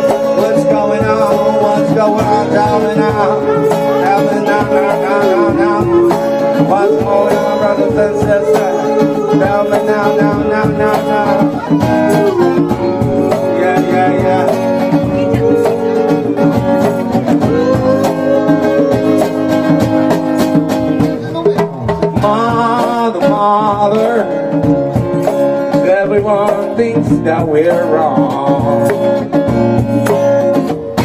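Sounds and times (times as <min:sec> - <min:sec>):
harmonica melody with pitch bends: 0:00.0 - 0:21.0
hand drum strokes: 0:00.0 - 0:31.0
strummed acoustic guitar: 0:00.0 - 0:31.0.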